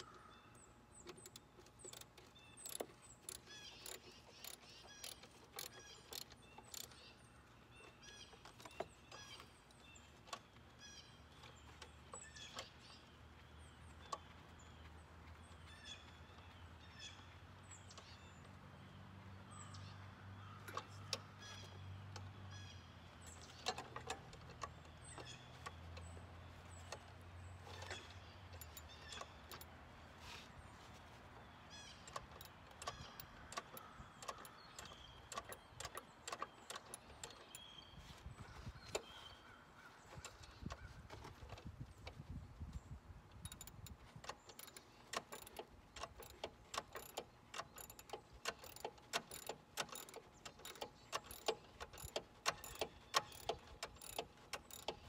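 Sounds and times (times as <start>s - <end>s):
birds chirping: 0.0s - 55.0s
hand tools clinking on metal: 27.7s - 29.7s, 43.4s - 55.0s.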